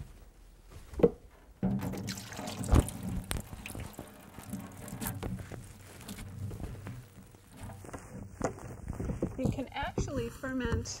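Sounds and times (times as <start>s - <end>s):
wet cabbage sliding and dropping: 1.8s - 10.2s.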